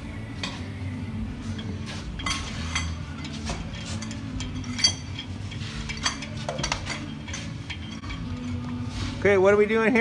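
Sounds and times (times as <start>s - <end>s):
metal lug nuts clinking: 1.4s - 8.9s.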